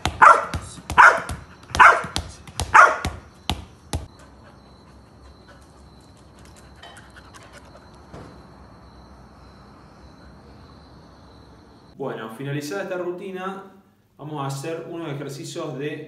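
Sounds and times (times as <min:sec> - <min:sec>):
dog barking: 0:00.1 - 0:03.2.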